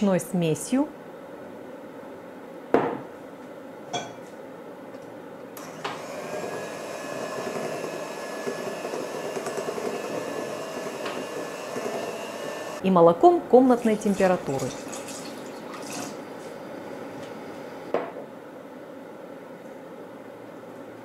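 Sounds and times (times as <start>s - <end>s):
glass bowls clinking: 3.9s - 4.2s
electric hand mixer whining: 5.6s - 12.8s.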